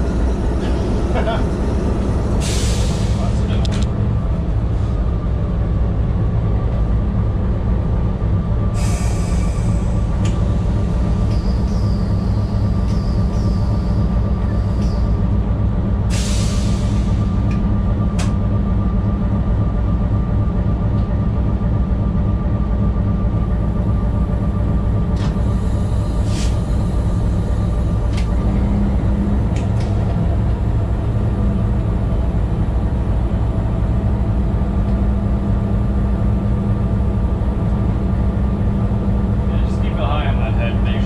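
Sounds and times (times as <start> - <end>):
diesel locomotive drone: 0.0 - 41.0
air hissing: 2.3 - 3.4, 8.8 - 10.0, 16.1 - 17.2, 25.6 - 26.8
faint wavering high squeal: 11.2 - 15.2.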